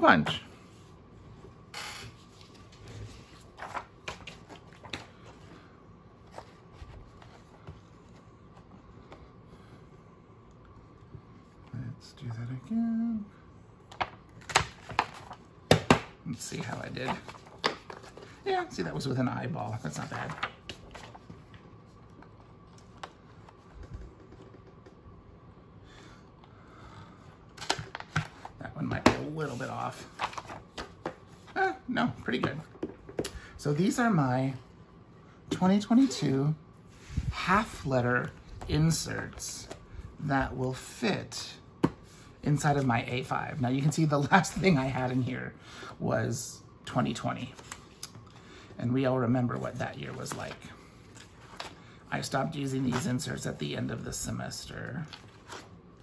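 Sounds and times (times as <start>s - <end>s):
faint paper handling: 2.2s - 9.3s, 16.4s - 24.9s, 27.6s - 31.6s, 47.4s - 48.4s, 49.5s - 51.9s.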